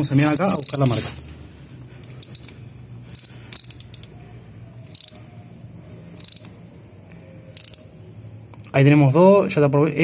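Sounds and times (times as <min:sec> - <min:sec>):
ratchet wrench pawl clicking: 0:00.1 - 0:00.9, 0:02.0 - 0:04.2, 0:04.8 - 0:05.3, 0:06.2 - 0:06.5, 0:07.5 - 0:07.9.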